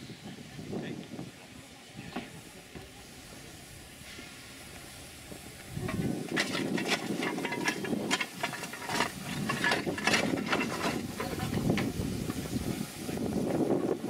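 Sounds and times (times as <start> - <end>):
faint steam hiss: 0.0 - 14.0
coal clattering and scraping: 5.8 - 12.0.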